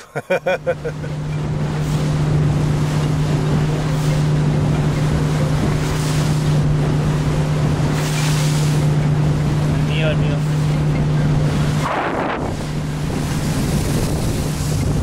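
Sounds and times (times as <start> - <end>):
motorboat engine droning: 0.0 - 15.0
water rushing along hull: 0.0 - 15.0
wind on microphone: 10.8 - 15.0.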